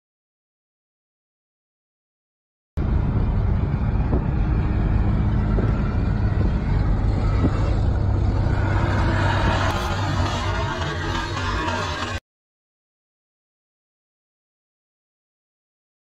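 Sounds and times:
car road and engine rumble: 0:02.8 - 0:12.2
metal grinding along road: 0:02.8 - 0:12.2.

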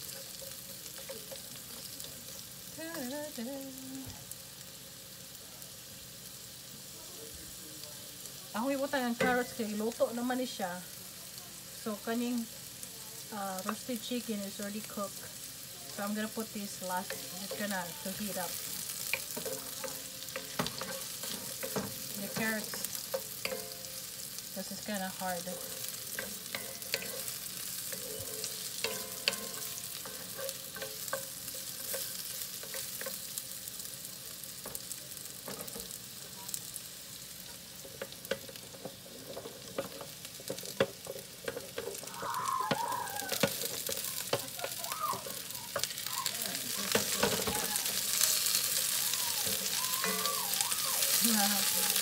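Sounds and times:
vegetables sizzling in a skillet: 0:00.0 - 0:52.0
wooden spatula scraping a pan: 0:15.9 - 0:24.0, 0:24.7 - 0:33.4, 0:37.4 - 0:52.0.

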